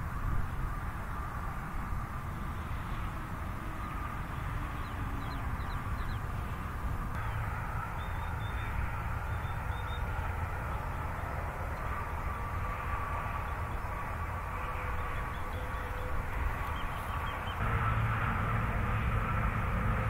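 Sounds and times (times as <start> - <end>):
highway traffic rumble: 0.0 - 20.0
bird chirping: 4.8 - 6.3, 15.0 - 17.6.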